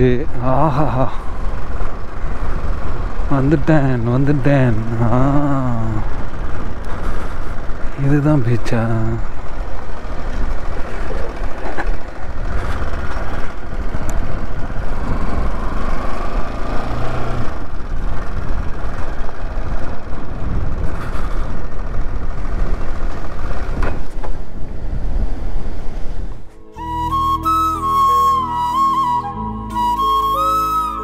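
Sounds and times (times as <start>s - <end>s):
motorcycle engine running: 8.8s - 26.8s
wind rumble on microphone: 9.2s - 27.7s.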